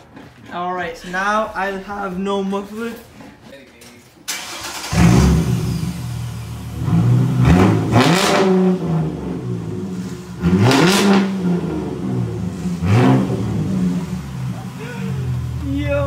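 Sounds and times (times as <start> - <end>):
car engine idling and revving: 4.3 - 16.0.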